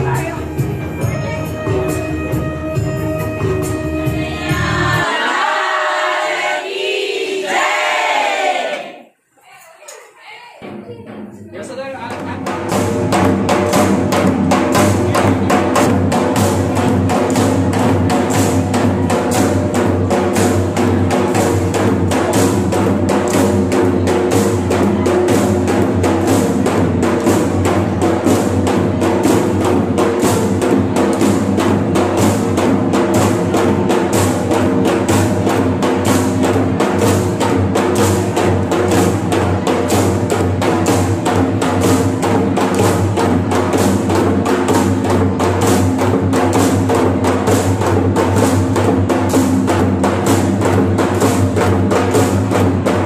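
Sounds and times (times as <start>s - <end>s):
drums beating fast rhythm: 0.0s - 8.0s, 10.2s - 53.0s.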